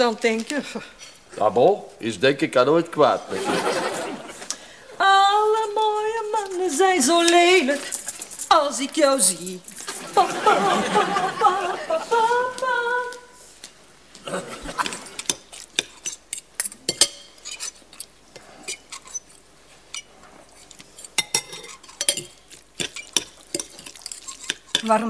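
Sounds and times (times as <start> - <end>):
cutlery clinking on plates: 14.7 - 18.1, 21.0 - 24.9.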